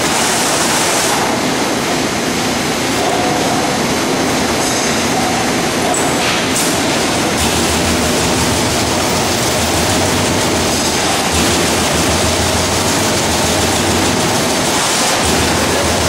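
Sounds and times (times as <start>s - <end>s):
punch press punching sheet metal: 6.0s - 16.0s.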